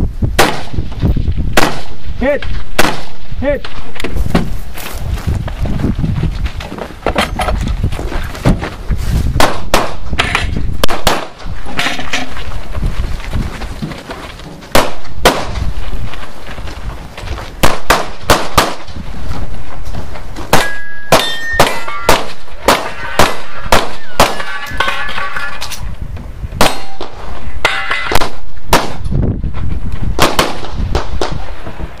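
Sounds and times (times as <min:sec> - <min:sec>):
gunshots: 0:00.4 - 0:01.0, 0:01.6 - 0:03.5, 0:09.4 - 0:11.4, 0:14.7 - 0:15.6, 0:17.6 - 0:19.0, 0:20.5 - 0:25.0, 0:26.6 - 0:29.1, 0:30.2 - 0:31.4
steel targets clanging: 0:20.6 - 0:25.8, 0:27.6 - 0:28.2.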